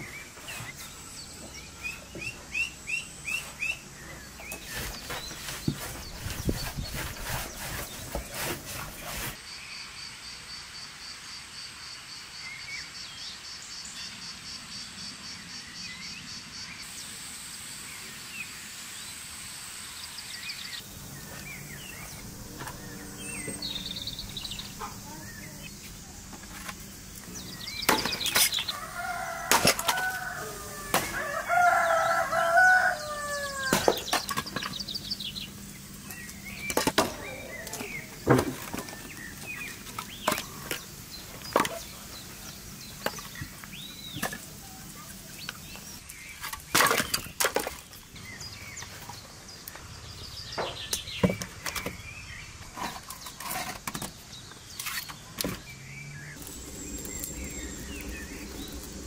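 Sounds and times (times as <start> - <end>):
birds chirping: 0.0 - 9.4, 17.8 - 59.0
rooster crowing: 28.7 - 34.0.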